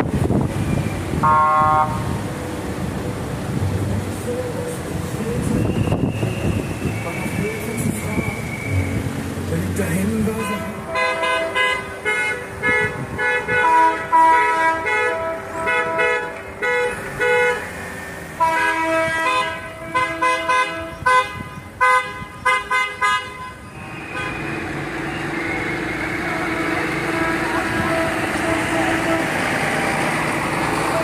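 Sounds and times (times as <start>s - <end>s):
steady engine hum: 0.0s - 31.0s
car horns honking: 0.5s - 2.3s, 5.2s - 31.0s.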